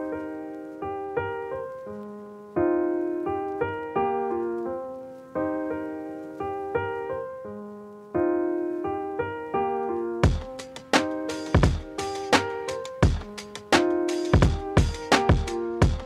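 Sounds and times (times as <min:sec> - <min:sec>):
keyboard chords: 0:00.0 - 0:16.0.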